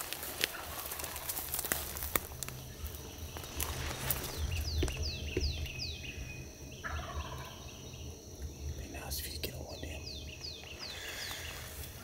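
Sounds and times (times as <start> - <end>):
high insect trill: 0.0 - 12.0
bird singing: 0.5 - 12.0.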